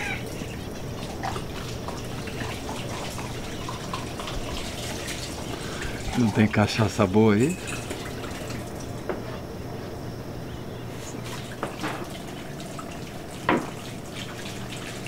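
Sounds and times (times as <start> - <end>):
low room hum: 0.0 - 15.0
light knocks and clinks: 7.4 - 8.1.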